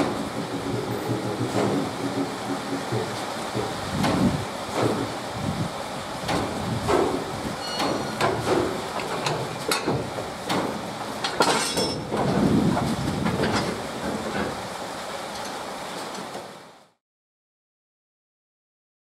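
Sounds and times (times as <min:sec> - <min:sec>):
short high squeals: 0:07.6 - 0:08.2
metallic clanks of train coupling: 0:07.6 - 0:10.6, 0:11.2 - 0:12.2.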